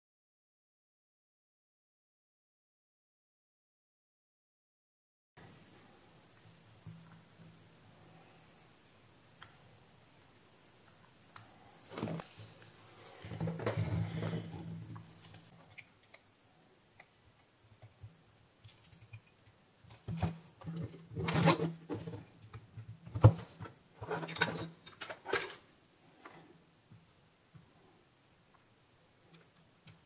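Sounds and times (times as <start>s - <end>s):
circuit board rustling and scraping: 11.4s - 16.2s, 18.6s - 22.4s.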